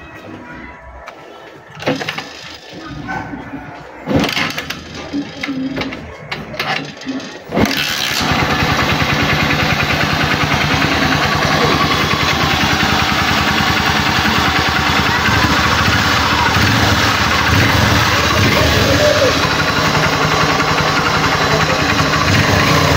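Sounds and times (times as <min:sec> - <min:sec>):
motorcycle engine idling: 0:07.6 - 0:22.9.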